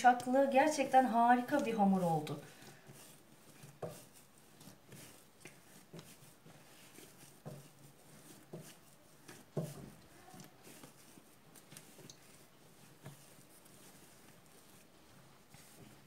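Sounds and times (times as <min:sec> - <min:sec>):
dough kneaded by hand: 0:00.0 - 0:16.0.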